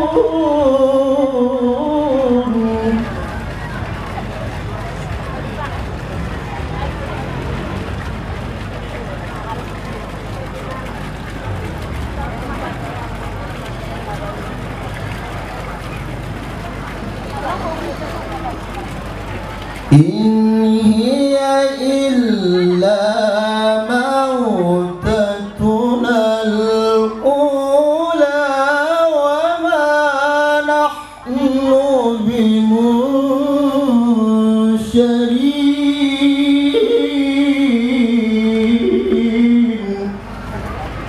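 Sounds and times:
man reciting melodically: 0.0s - 3.2s, 19.9s - 40.3s.

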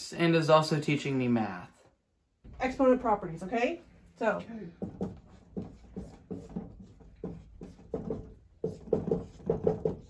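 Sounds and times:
marker squeaking on whiteboard: 5.0s - 10.0s.

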